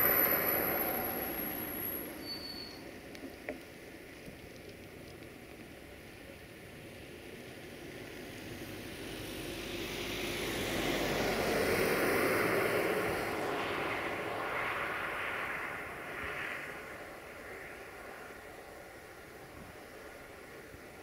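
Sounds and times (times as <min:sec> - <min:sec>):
vehicle passing: 0:08.3 - 0:19.3.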